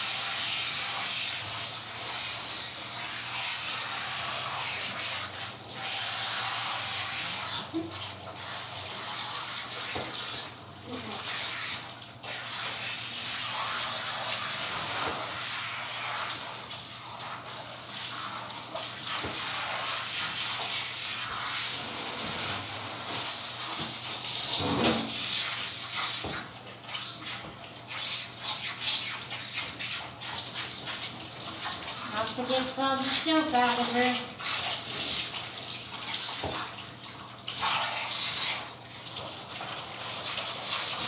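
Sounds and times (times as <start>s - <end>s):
water hissing from sprayer: 0.0s - 26.4s.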